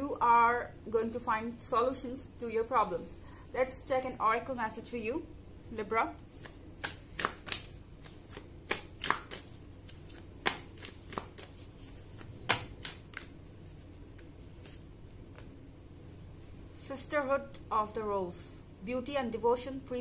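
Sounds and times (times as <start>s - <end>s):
cards being shuffled: 6.3s - 15.6s.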